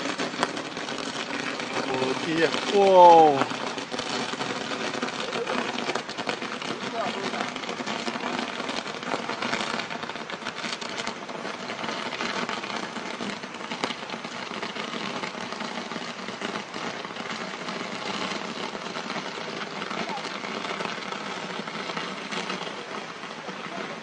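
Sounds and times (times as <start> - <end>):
firework crackling and hissing: 0.0 - 24.0.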